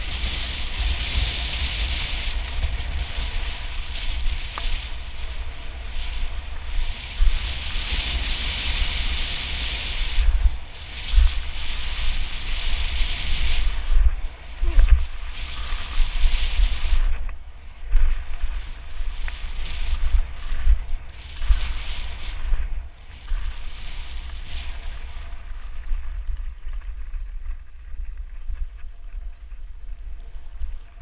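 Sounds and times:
bike tyres rolling over gravel: 0.0 - 31.0
wind buffeting microphone: 0.0 - 31.0.

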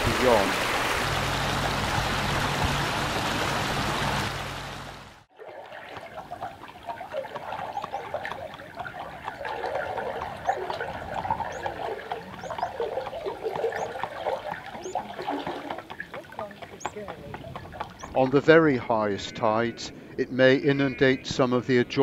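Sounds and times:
water trickling and gurgling: 0.0 - 18.6.

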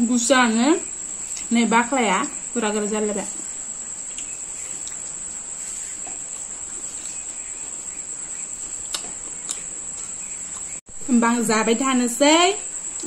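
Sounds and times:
crickets chirping: 0.0 - 13.0
faint chewing clicks: 1.1 - 1.5, 3.9 - 10.8.

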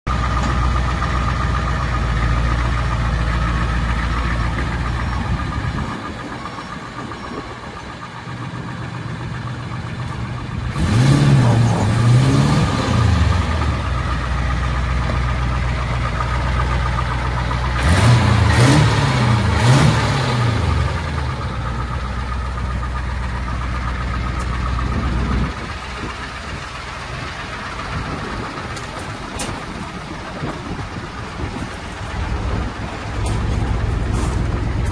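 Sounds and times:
diesel engine idling and revving: 0.0 - 34.9.

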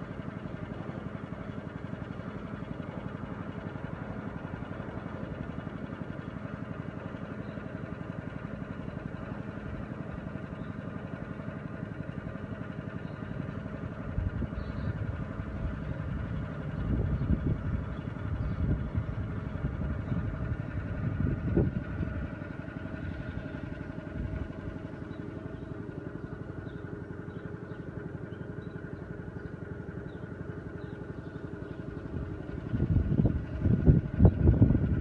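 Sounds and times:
engine running steadily: 0.0 - 35.0
heavy low rumbling: 14.1 - 35.0.

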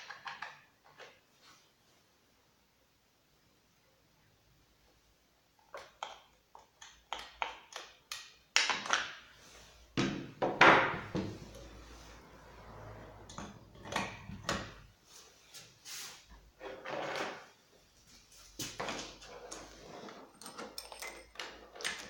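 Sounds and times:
thump with scraping: 10.0 - 11.5.

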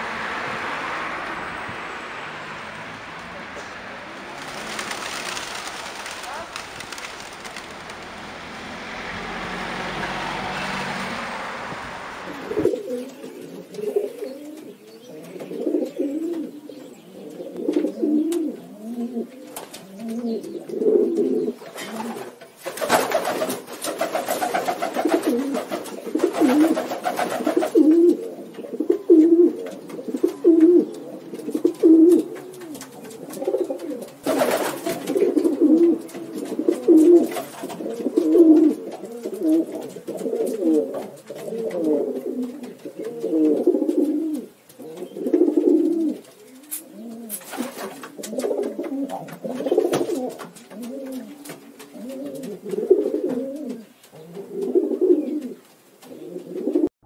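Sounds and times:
pigeons cooing: 12.1 - 56.9.

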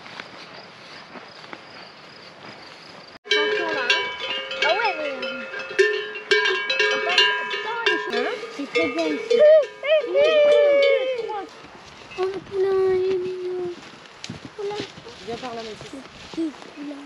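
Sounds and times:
horse bells clanking: 3.2 - 12.7
soft steady rustle: 11.3 - 17.0.

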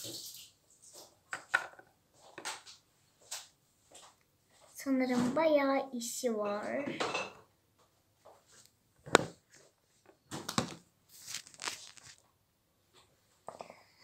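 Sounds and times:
rustling: 8.4 - 12.2.

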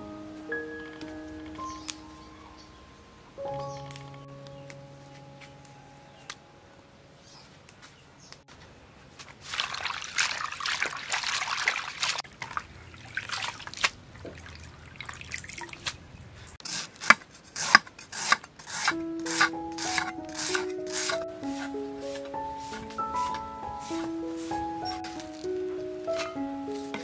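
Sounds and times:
background music: 0.0 - 7.1, 18.8 - 27.0
leaves swished in water: 9.2 - 16.5
water splashing and trickling: 9.2 - 16.6.

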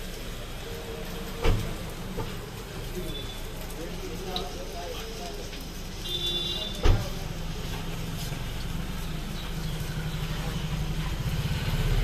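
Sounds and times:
patties sizzling in oil: 0.0 - 12.0.

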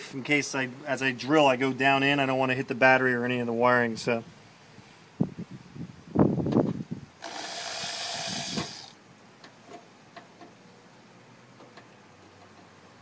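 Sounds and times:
power drill through sheet metal: 7.2 - 9.0.

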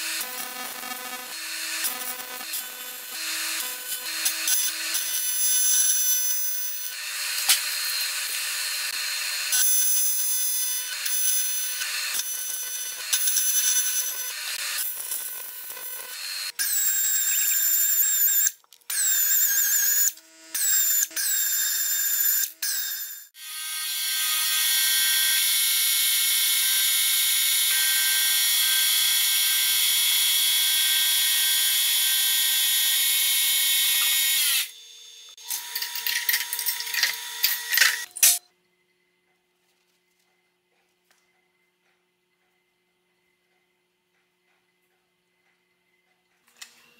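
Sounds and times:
welding arc buzzing: 0.0 - 25.8, 26.8 - 38.5
milling cutter machining metal: 1.3 - 38.4.

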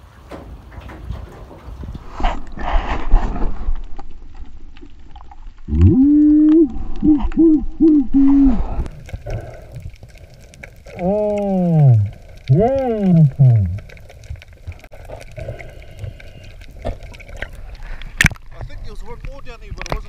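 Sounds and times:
rushing water: 0.0 - 20.0
person hooting underwater: 5.7 - 8.8, 10.9 - 13.9.

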